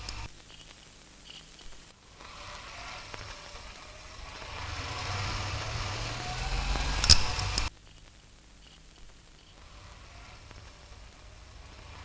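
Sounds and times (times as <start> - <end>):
motorcycle engines approaching: 2.2 - 7.7, 9.6 - 12.0.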